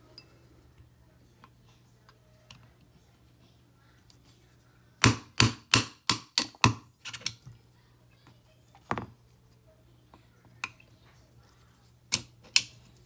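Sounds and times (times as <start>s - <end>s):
faint low hum: 0.0s - 5.2s, 6.8s - 13.0s.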